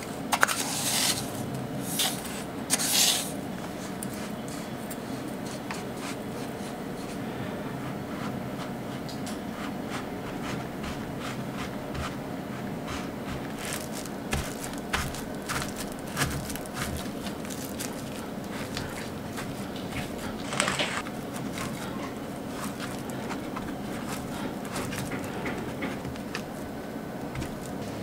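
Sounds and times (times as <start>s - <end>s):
steady low hum: 0.0s - 28.0s
biscuit crumbs crunching: 9.6s - 28.0s
plastic crinkling: 13.0s - 28.0s.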